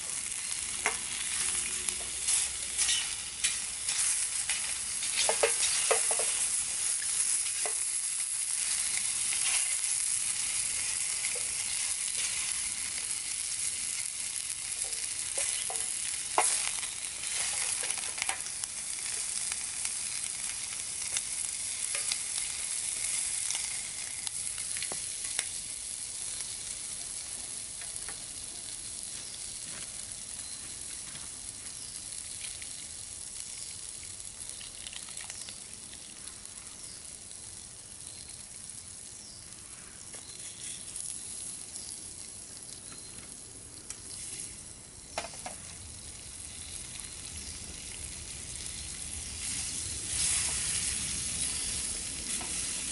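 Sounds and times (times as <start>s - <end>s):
bacon sizzling in frying pan: 0.0s - 52.9s
wooden spatula scraping: 0.8s - 6.5s.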